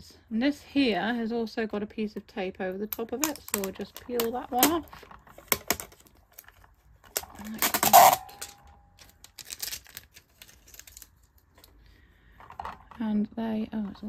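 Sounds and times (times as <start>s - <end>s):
hands tapping hard plastic: 2.9s - 4.8s, 5.4s - 6.1s
sticky tape ripping: 7.1s - 11.1s.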